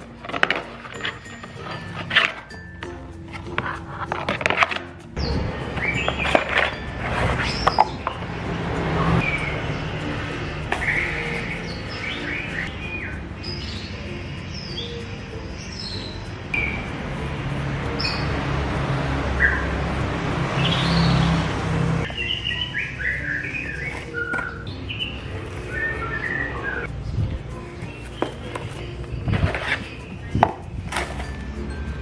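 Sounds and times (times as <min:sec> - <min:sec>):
small birds chirping: 0:05.2 - 0:08.4, 0:09.0 - 0:18.5, 0:19.3 - 0:30.9.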